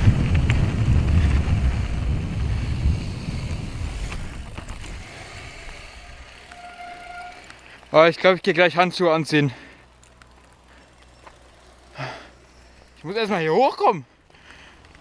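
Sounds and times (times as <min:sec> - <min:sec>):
wind buffeting microphone: 0:00.0 - 0:06.4
bike tyres rumbling on gravel: 0:00.0 - 0:15.0.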